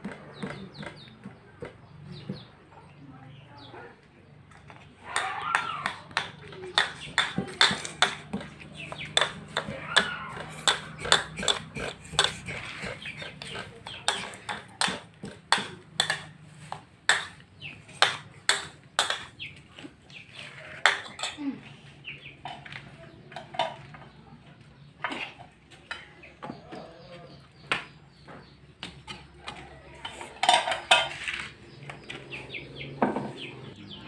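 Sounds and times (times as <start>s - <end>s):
crockery clinking and clattering: 6.1s - 16.4s, 22.4s - 24.2s, 30.0s - 31.6s.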